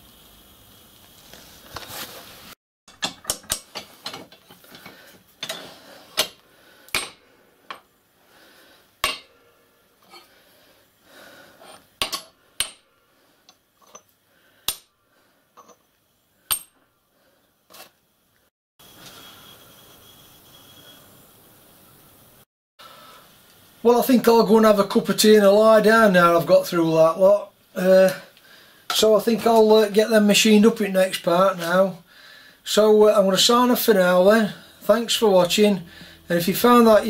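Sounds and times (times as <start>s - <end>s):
metal knocks and clinks: 2.9s - 5.6s.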